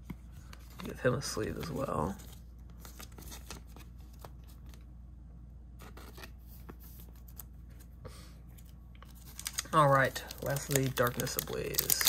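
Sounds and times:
plastic sleeve rustling: 8.6 - 12.0.

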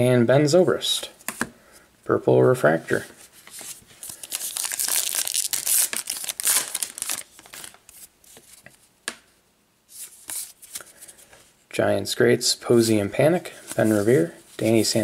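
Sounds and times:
cards rustling and clicking: 3.4 - 8.8
wrapper tearing and crinkling: 4.0 - 7.9.

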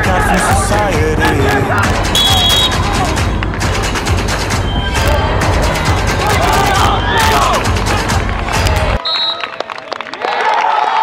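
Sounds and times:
song with heavy bass: 0.0 - 9.0.

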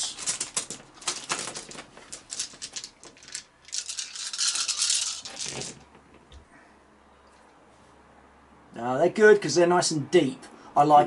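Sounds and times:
dice clicking together: 0.0 - 5.8
dice rattling in hands: 0.0 - 5.8.

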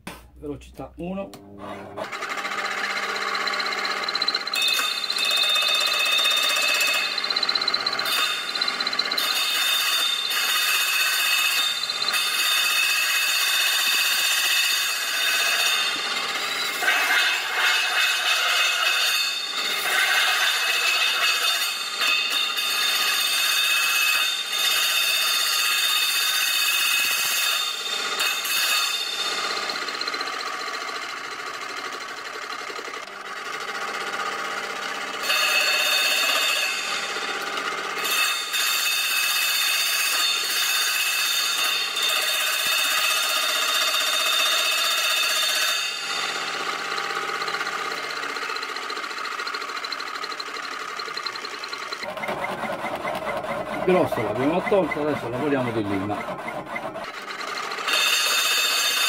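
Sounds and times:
harsh metallic scraping: 14.9 - 22.7, 51.0 - 58.8.

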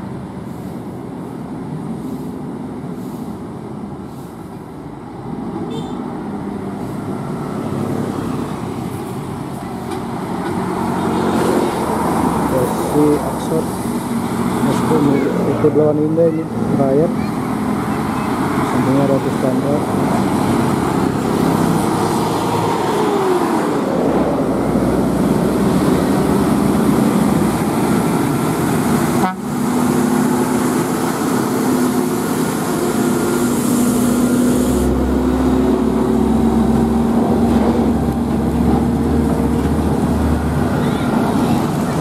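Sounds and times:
trucks passing: 0.0 - 42.0
truck horn: 5.7 - 6.0, 29.1 - 29.6.

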